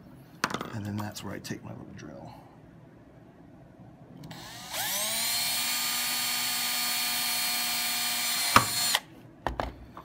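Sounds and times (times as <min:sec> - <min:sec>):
cordless drill whining: 0:04.2 - 0:09.1.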